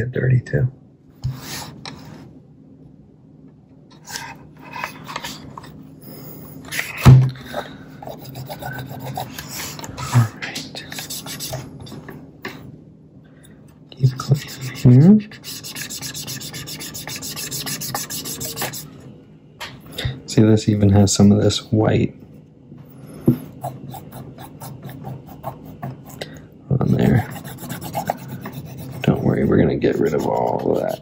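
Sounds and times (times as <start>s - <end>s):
scratchy rubbing on plastic: 8.0s - 9.8s, 10.8s - 11.7s, 14.1s - 18.9s, 23.3s - 26.2s, 26.9s - 31.0s.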